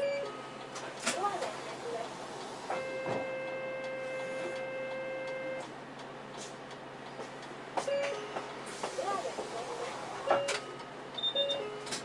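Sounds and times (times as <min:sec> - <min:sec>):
short beeps: 0:00.0 - 0:00.5, 0:02.7 - 0:05.7, 0:07.9 - 0:08.3, 0:10.3 - 0:11.8
bus running noise: 0:00.0 - 0:12.0.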